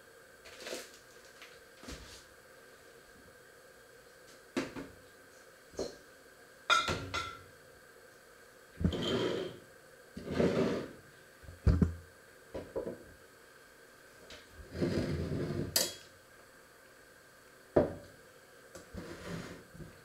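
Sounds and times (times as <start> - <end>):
dishes and utensils scraping: 8.8 - 9.6.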